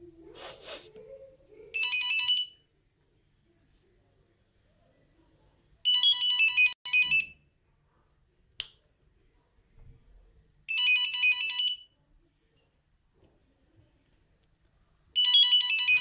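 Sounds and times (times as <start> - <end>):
mobile phone ringtone beeps: 1.8 - 2.6, 5.9 - 7.4, 10.7 - 11.9, 15.2 - 16.0.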